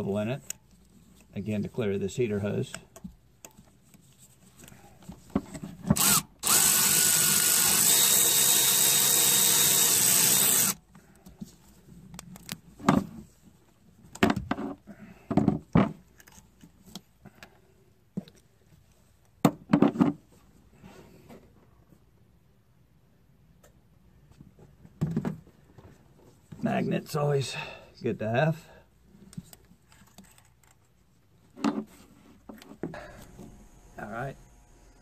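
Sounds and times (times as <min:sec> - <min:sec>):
power tool running: 0:06.0 - 0:10.8, 0:33.0 - 0:35.0.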